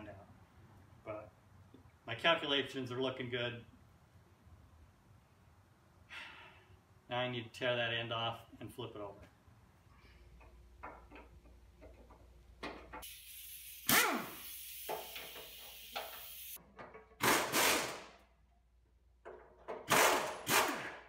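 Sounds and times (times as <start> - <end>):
pneumatic impact wrench: 13.0 - 16.6, 17.2 - 18.2, 19.8 - 21.0.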